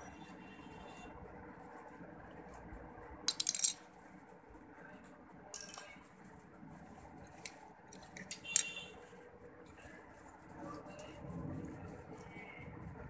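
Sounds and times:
faint room noise: 0.0 - 13.0.

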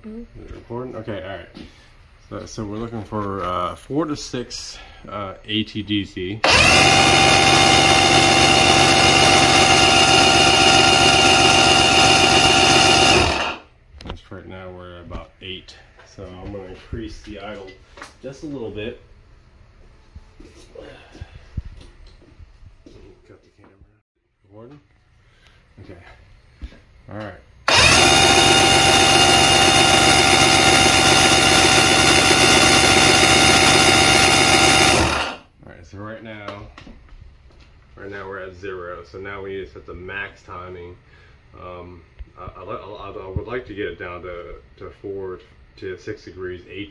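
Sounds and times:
outboard motor turning over: 6.4 - 13.6, 27.7 - 35.4.

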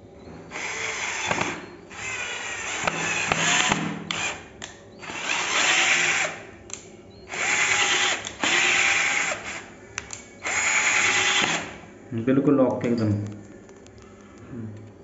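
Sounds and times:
cordless drill driving screw into wood: 0.5 - 4.4, 5.0 - 6.4, 7.3 - 9.6, 10.4 - 11.8.

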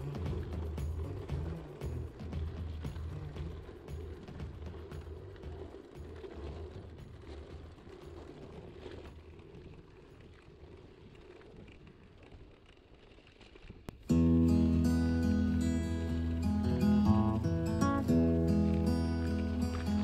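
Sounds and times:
acoustic guitar music: 14.0 - 20.0.

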